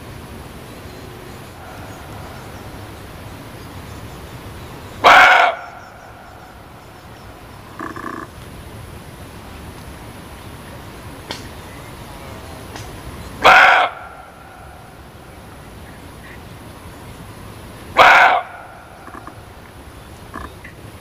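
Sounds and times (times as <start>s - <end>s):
steady background hiss: 0.0s - 21.0s
deer barking: 5.0s - 6.7s, 13.4s - 15.1s, 17.9s - 19.4s.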